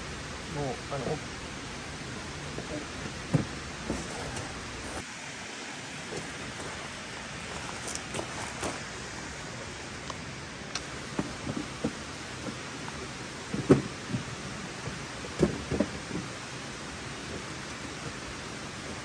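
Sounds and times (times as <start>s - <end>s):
soft knocks and thuds: 3.3s - 4.5s, 13.5s - 14.3s, 14.9s - 16.3s.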